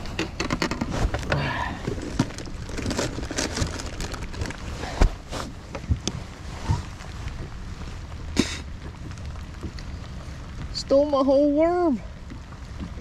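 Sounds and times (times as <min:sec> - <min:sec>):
low rumble of wind and water: 0:00.0 - 0:13.0
tackle being rummaged: 0:00.1 - 0:05.9.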